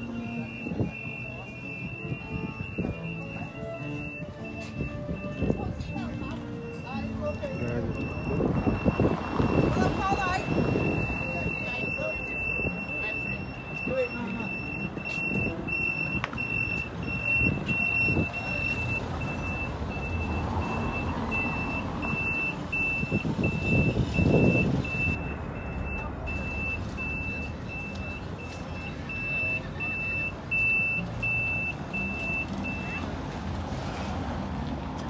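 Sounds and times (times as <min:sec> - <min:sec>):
vehicle reversing alarm beeping: 0:00.0 - 0:33.2
road traffic rumble: 0:00.0 - 0:35.0.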